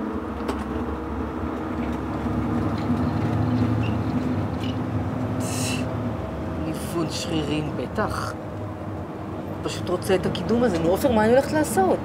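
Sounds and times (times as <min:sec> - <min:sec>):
bus engine droning: 0:00.0 - 0:12.0
road and cabin rumble: 0:00.0 - 0:12.0.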